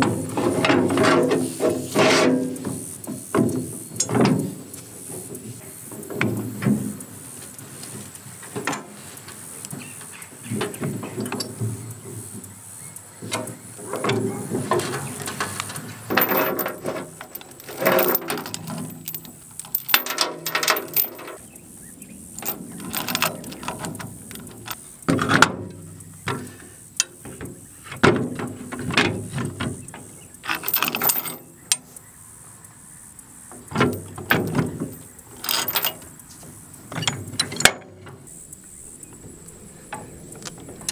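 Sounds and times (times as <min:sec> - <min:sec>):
farm jack clanking and clicking: 0:00.0 - 0:12.5, 0:13.2 - 0:21.6, 0:22.4 - 0:32.0, 0:33.5 - 0:40.9
steel chain rattling: 0:13.4 - 0:21.5, 0:22.4 - 0:24.9, 0:28.6 - 0:31.8, 0:33.8 - 0:40.9.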